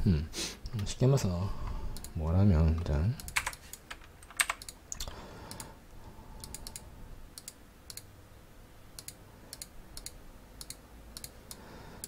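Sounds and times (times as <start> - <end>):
computer keyboard clicks: 3.2 - 5.7.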